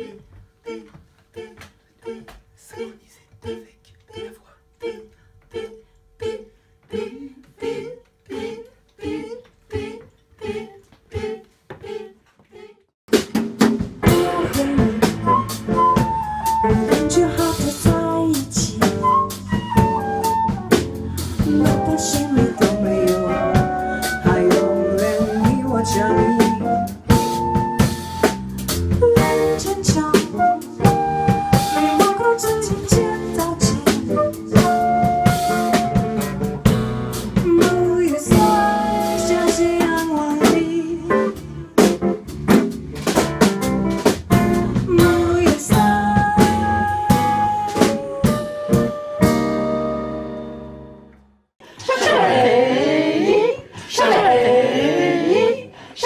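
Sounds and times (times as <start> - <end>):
drum kit: 13.1 - 50.8
bass: 13.1 - 51.5
flute: 14.1 - 36.6, 38.3 - 40.6, 45.0 - 50.4
woman singing into a microphone: 17.0 - 19.0, 21.5 - 26.8, 31.6 - 34.7, 37.4 - 41.4, 44.9 - 48.6.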